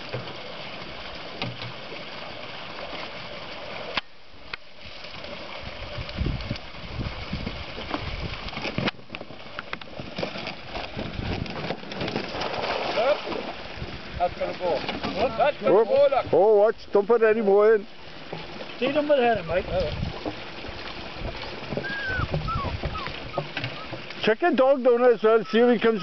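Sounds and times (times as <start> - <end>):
water running through a pipe: 0.0 - 26.0
wind buffeting the microphone: 5.6 - 8.8, 10.9 - 11.7, 13.6 - 16.4, 19.3 - 24.0.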